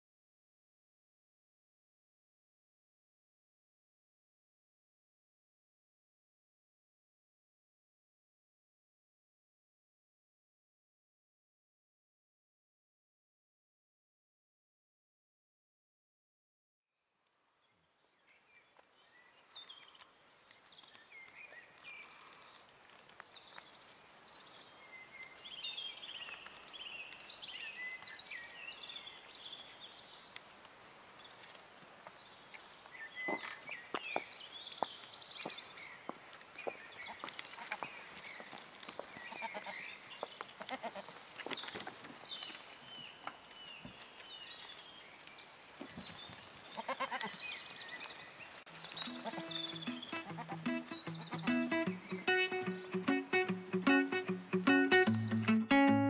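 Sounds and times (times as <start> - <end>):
goats bleating: 39.4 - 39.8, 46.8 - 47.4, 48.8 - 53.1
high bird chirps: 48.7 - 56.0.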